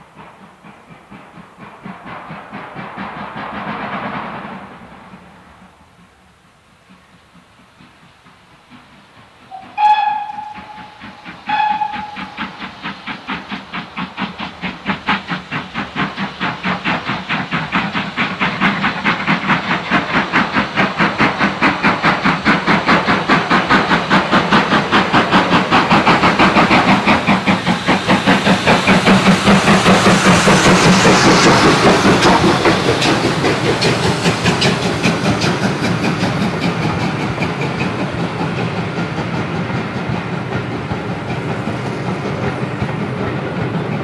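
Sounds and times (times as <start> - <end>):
steam locomotive exhaust beat: 0.0 - 44.0
steam whistle blasts: 9.5 - 12.6.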